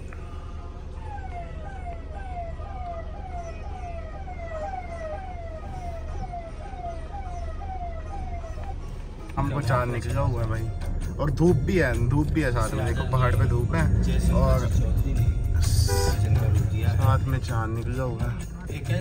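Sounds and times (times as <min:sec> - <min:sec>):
low rumble of moving car: 0:00.0 - 0:19.0
electronic siren wailing: 0:01.0 - 0:08.8.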